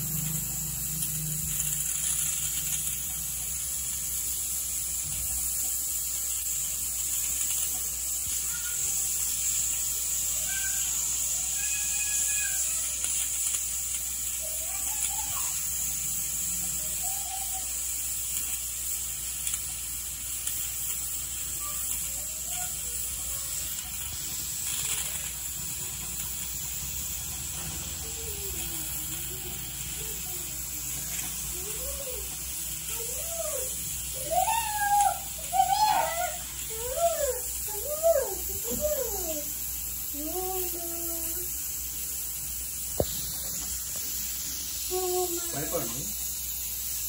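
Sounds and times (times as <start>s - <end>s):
pressure cooker hissing: 0.0s - 47.0s
faint wavering calls: 16.6s - 17.8s, 31.5s - 38.4s.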